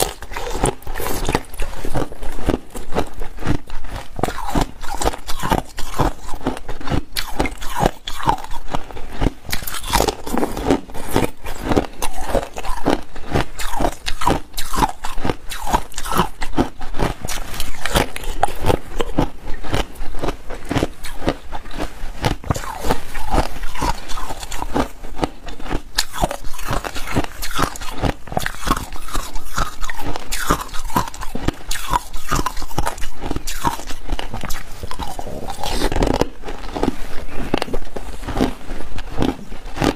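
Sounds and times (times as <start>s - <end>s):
person crunching ice cubes: 0.0s - 39.9s.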